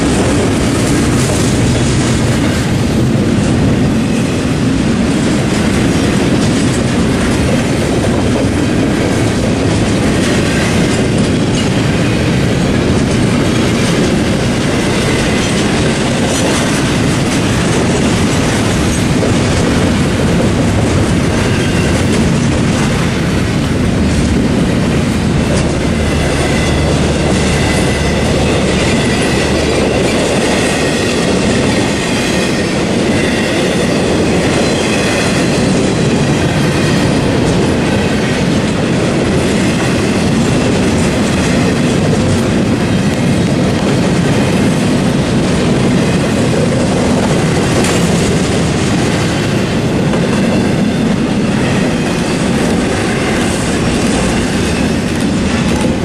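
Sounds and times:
freight train rumbling past: 0.0s - 56.0s
wheels clacking over rails: 0.0s - 56.0s.

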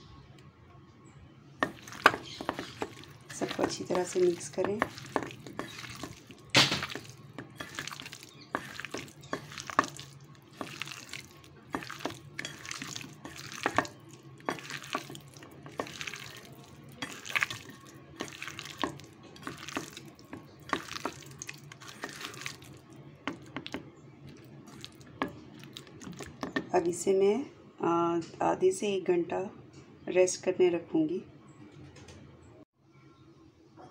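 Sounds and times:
hand squelching meat in marinade: 1.6s - 26.5s.

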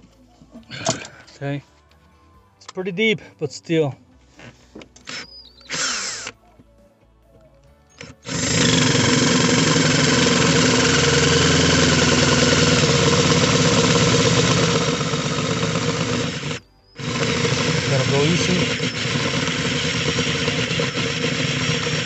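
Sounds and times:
cordless drill whining under load: 5.0s - 6.4s, 8.0s - 22.0s.

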